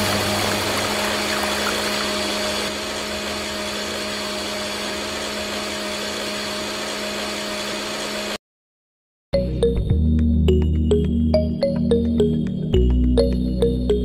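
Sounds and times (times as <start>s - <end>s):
small electric motor whirring: 0.0s - 8.4s.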